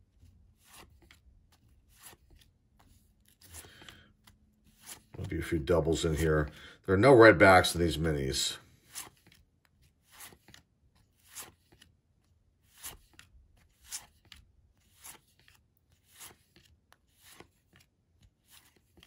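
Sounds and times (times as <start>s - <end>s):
cards sliding off a stack: 11.2s - 11.9s.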